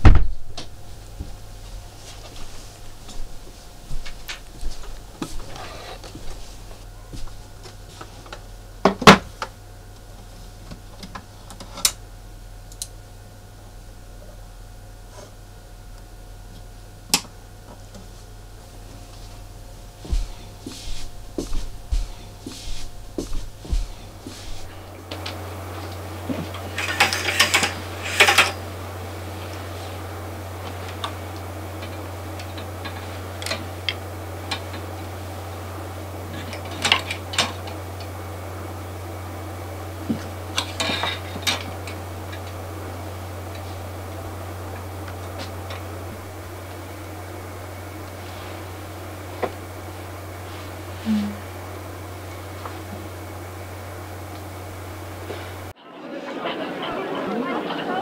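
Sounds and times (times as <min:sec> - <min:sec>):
steady low hum: 0:00.0 - 0:58.0
clothes hangers clattering on rail: 0:25.1 - 0:28.7.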